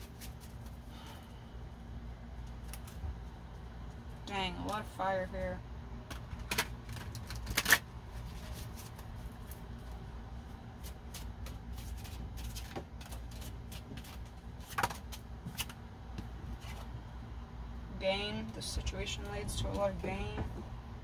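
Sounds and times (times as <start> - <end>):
steady low hum: 0.0 - 21.0
cards clicking and tapping: 10.8 - 15.8.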